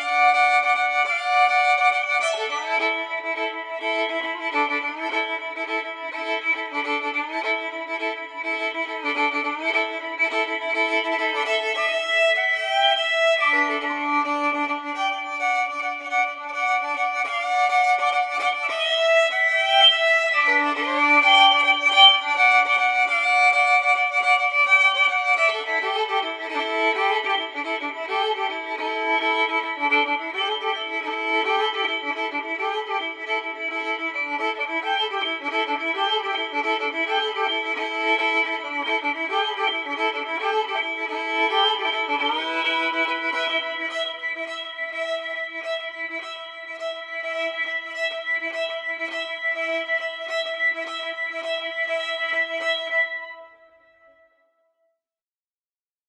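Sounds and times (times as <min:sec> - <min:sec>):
violin slow bowed notes: 0:00.0 - 0:54.3.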